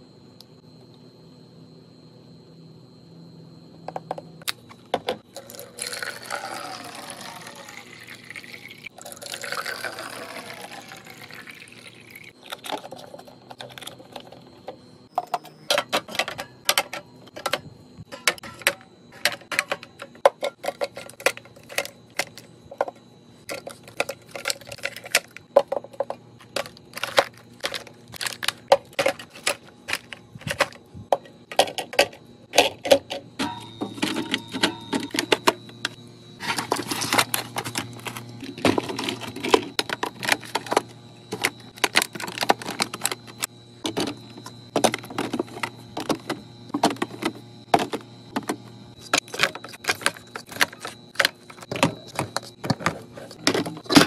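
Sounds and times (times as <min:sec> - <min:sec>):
juice pouring into bottles: 0:05.3 - 0:12.6
cans and bottles clicking into bins: 0:12.4 - 0:54.0.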